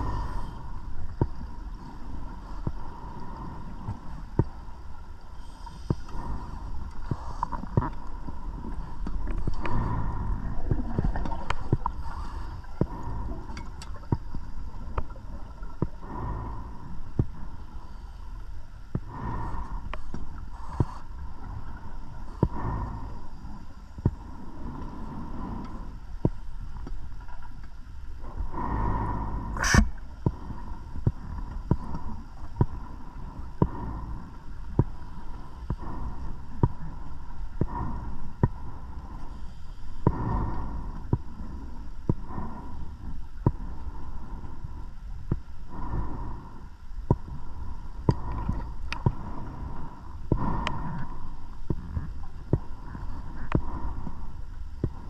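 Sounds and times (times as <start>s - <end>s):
exhaled bubbles gurgling underwater: 0.0s - 17.8s
faint steady tone: 0.0s - 55.0s.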